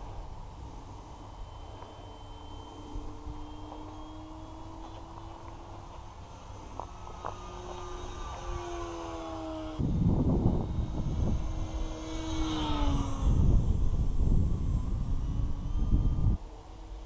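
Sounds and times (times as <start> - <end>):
model plane motor whining past: 0.0 - 17.0
wind rumble on microphone: 7.2 - 17.0.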